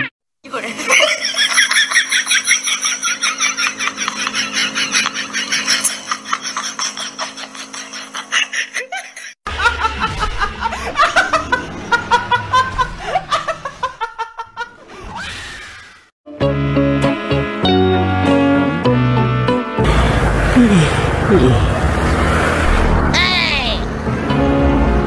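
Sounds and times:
high-pitched laughing: 0:00.0 - 0:15.0
woman laughing loudly: 0:00.6 - 0:14.8.

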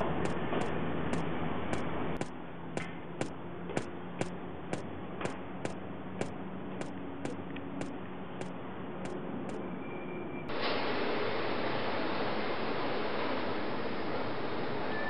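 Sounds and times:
sharp ticking clicks: 0:00.0 - 0:09.2.

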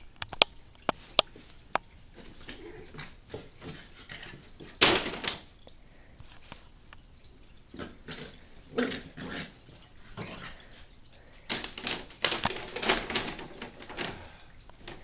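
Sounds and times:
rustling and scratching of fabric: 0:00.9 - 0:04.8, 0:11.5 - 0:15.0.

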